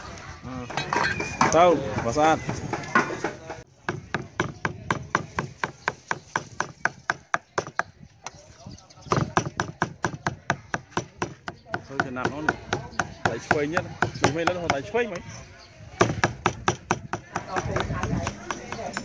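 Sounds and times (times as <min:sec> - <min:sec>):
cleaver chopping on wooden block: 0:03.8 - 0:07.9, 0:09.1 - 0:14.8, 0:16.0 - 0:19.0.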